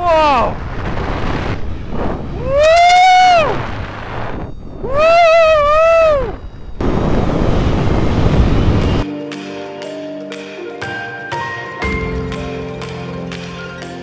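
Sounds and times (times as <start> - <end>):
wind rushing over microphone: 0.0 - 9.0
person whooping: 2.4 - 3.6, 4.8 - 6.4
soft mallet music: 9.0 - 14.0.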